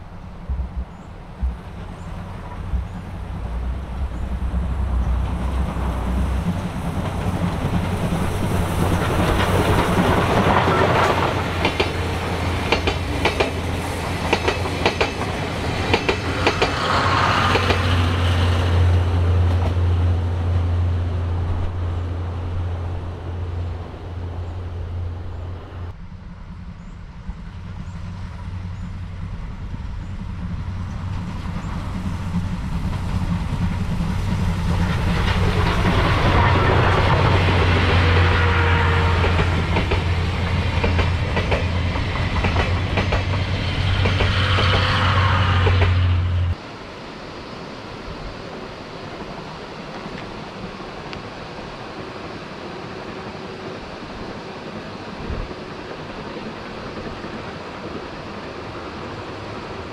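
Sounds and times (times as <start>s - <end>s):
train wheels clacking: 0.4s - 19.8s, 28.8s - 46.2s.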